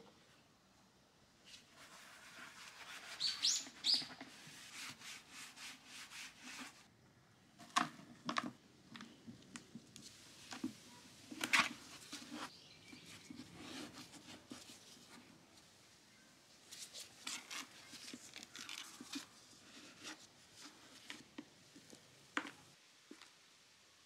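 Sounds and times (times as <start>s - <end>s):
gloved hands rustling in plastic bucket: 16.6s - 23.3s.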